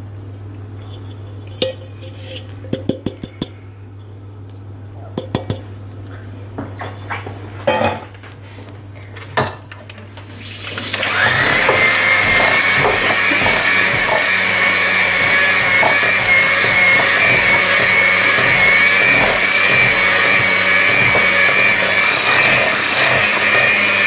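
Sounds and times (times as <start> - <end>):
electric hand mixer whine: 10.5 - 24.0.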